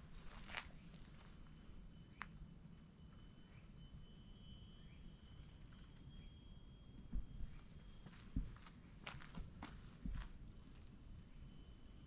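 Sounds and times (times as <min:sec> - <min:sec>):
insects chirring: 0:00.0 - 0:12.0
dull thump: 0:07.1 - 0:10.4.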